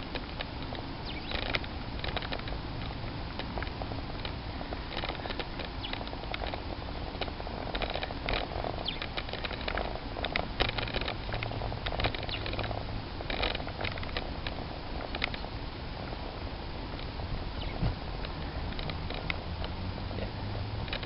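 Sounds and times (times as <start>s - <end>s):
bicycle freewheel ticking: 0.0s - 16.2s
bike rattling over bumps: 0.0s - 21.0s
tyre and road noise: 0.0s - 21.0s
wind rumble on microphone: 0.0s - 21.0s.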